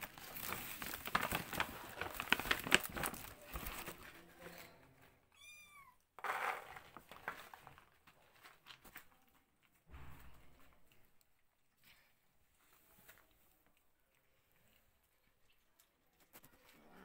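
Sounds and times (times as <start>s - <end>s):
kitten mewing: 5.4s - 6.0s.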